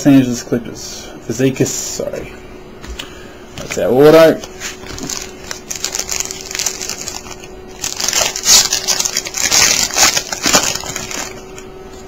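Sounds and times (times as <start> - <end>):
foil wrapper tearing and crinkling: 4.8 - 11.5.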